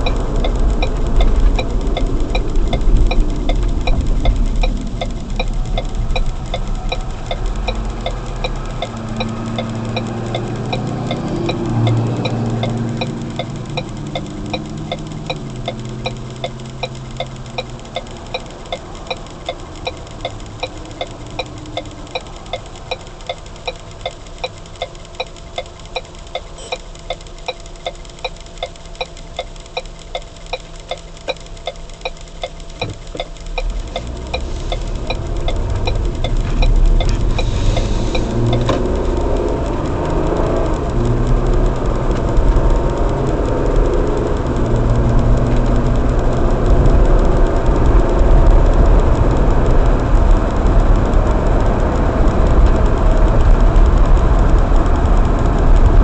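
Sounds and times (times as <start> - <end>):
car engine idling: 0.0 - 56.0
road noise: 0.0 - 56.0
turn signal ticking: 0.0 - 56.0.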